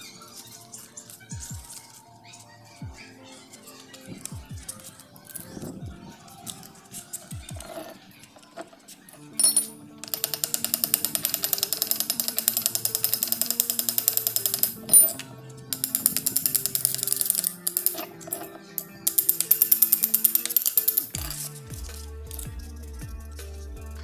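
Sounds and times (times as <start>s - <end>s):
background music: 0.0s - 24.0s
metal tool tapping on paper: 9.4s - 15.0s.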